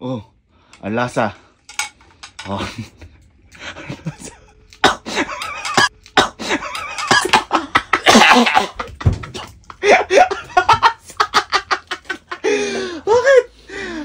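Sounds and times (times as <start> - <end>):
person laughing: 3.6 - 13.5
person coughing: 4.8 - 8.8.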